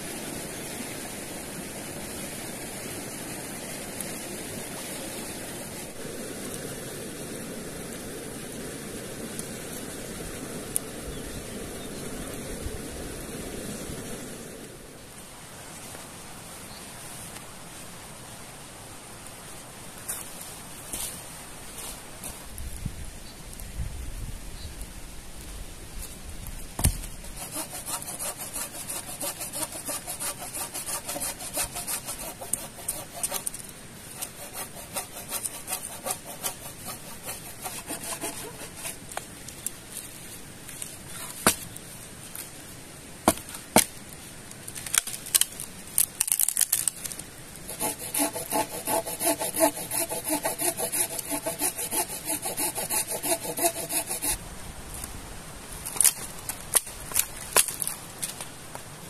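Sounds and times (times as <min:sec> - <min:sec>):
saw cutting log: 0:26.8 - 0:39.2, 0:47.7 - 0:54.4.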